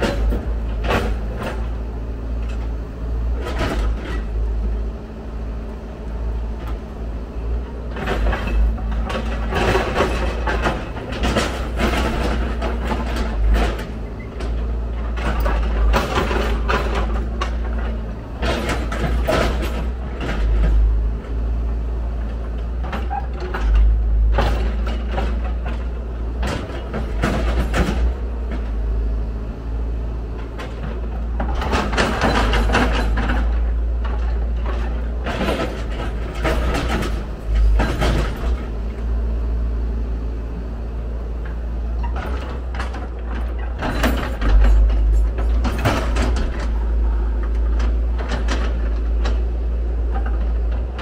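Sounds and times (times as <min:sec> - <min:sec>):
diesel engine rumbling: 0:00.0 - 0:51.0
excavator bucket digging soil: 0:06.4 - 0:21.6, 0:30.3 - 0:39.8, 0:41.4 - 0:51.0.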